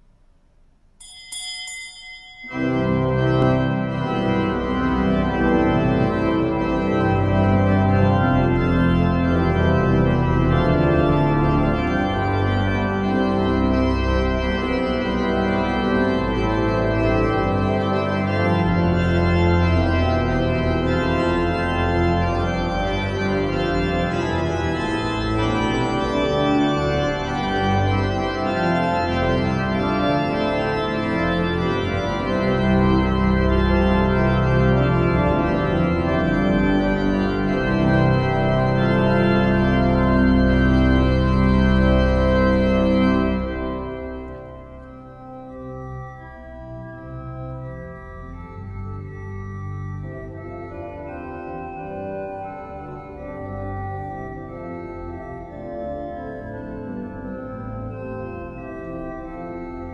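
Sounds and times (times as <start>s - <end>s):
high ringing tone: 1.0s - 2.8s
pipe organ playing chords: 2.5s - 59.9s.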